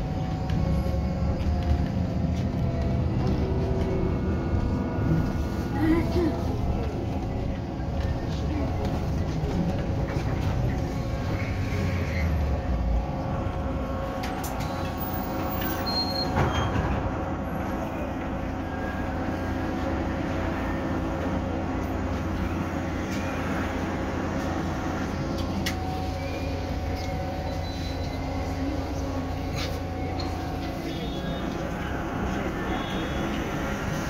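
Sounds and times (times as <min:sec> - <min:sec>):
road rumble: 0:00.0 - 0:34.0.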